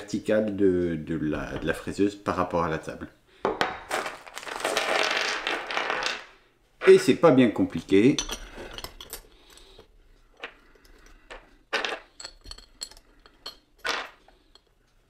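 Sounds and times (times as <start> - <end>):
bolts and nuts clinking on metal: 7.6 - 14.9.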